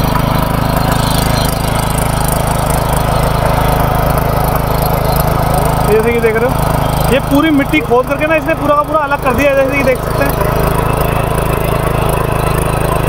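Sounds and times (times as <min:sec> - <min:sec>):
tiller engine hum: 0:00.0 - 0:13.0
tines churning soil: 0:00.0 - 0:13.0.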